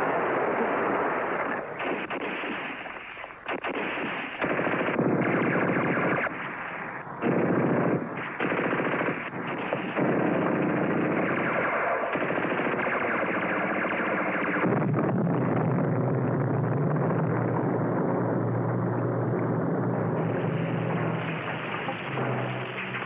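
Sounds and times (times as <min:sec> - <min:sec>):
machine gun firing bursts: 0:01.8 - 0:15.7, 0:19.6 - 0:23.0.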